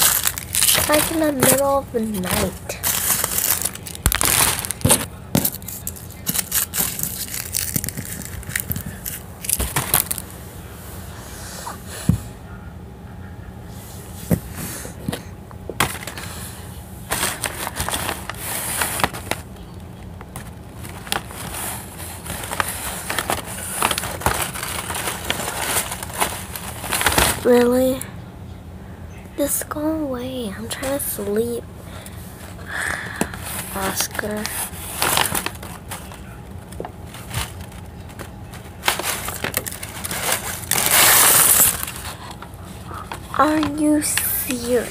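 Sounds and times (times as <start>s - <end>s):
paper bag crinkling: 0.0s - 10.3s, 15.8s - 16.3s, 17.1s - 19.6s, 20.2s - 28.0s, 33.4s - 44.9s
steady low hum: 0.0s - 44.9s.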